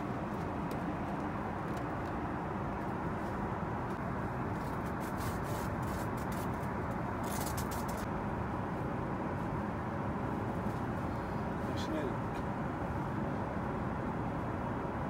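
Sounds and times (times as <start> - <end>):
airplane cabin noise: 0.0 - 15.0.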